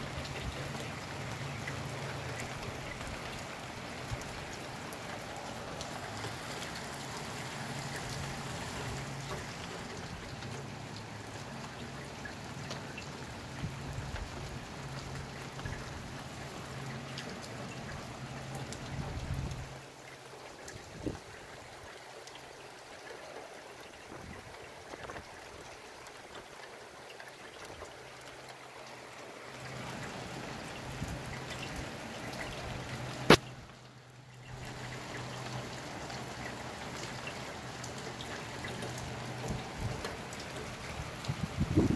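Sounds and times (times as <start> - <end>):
steady rain: 0.0 - 41.9
water dripping and trickling: 0.0 - 41.9.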